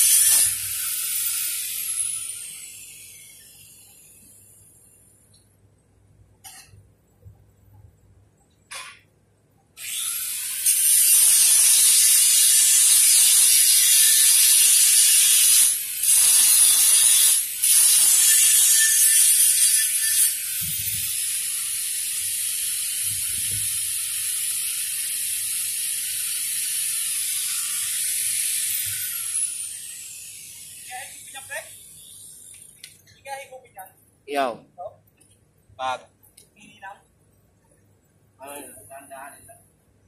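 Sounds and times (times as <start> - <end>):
angle grinder grinding steel: 0.0 - 4.1, 9.8 - 32.8.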